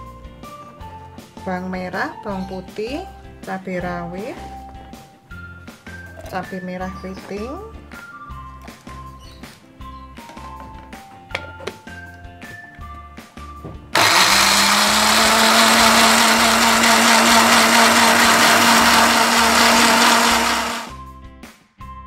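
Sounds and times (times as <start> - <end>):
electric blender grinding: 14.0 - 20.9.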